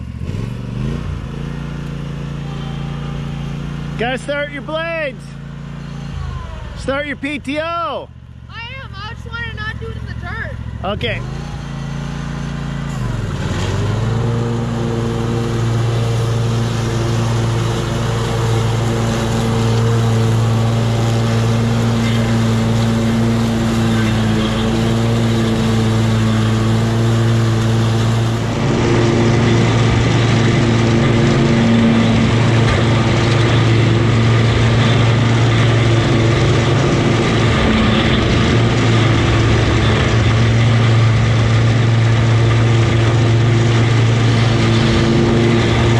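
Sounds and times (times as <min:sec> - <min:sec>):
mower engine running: 0:00.0 - 0:45.9
mower blades cutting wet grass: 0:09.3 - 0:45.9.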